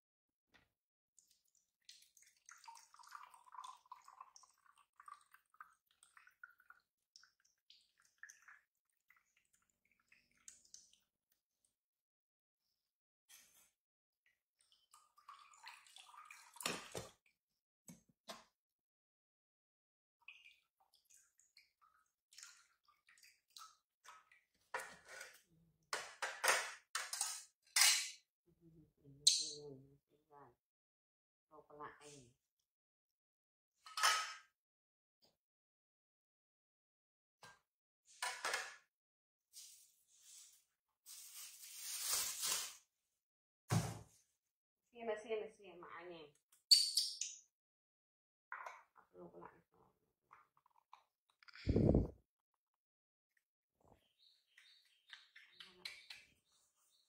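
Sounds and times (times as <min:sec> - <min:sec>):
coconut water trickling into jar: 0:01.2 - 0:11.2, 0:14.6 - 0:17.2.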